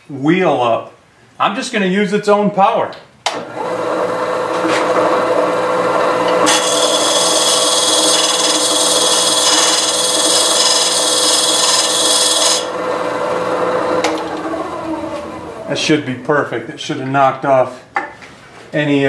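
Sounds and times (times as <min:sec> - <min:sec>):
bandsaw motor humming: 0:03.4 - 0:15.8
hand tool scraping spinning wheel: 0:06.3 - 0:12.7.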